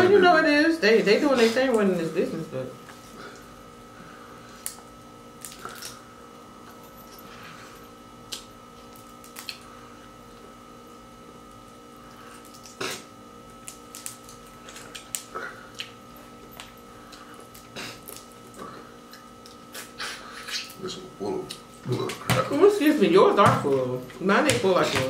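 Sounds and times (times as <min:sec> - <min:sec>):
steady background hum: 0:00.0 - 0:25.0
crab shells cracking: 0:05.4 - 0:06.0, 0:08.3 - 0:09.7, 0:12.4 - 0:13.0, 0:13.6 - 0:16.0.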